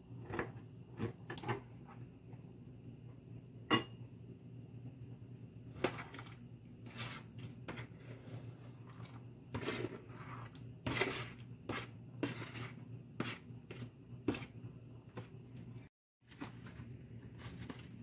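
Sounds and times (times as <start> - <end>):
spatula scraping cutting board: 5.7 - 15.4.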